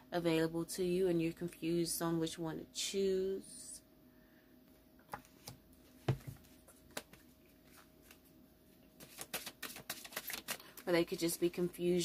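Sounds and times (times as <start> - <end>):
cards shuffling clicks and slaps: 5.1 - 8.2, 9.0 - 10.8.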